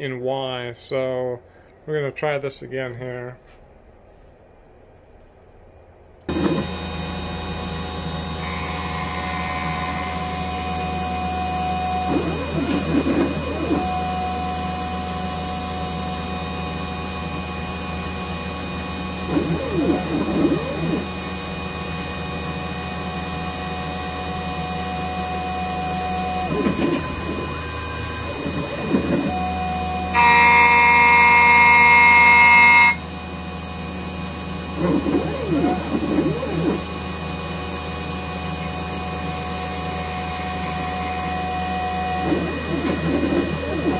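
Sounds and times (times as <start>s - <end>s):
stepper motors whining: 6.3s - 21.4s, 23.2s - 33.0s, 34.7s - 37.0s, 39.0s - 43.9s
milling machine spindle running: 6.3s - 33.0s, 34.4s - 43.9s.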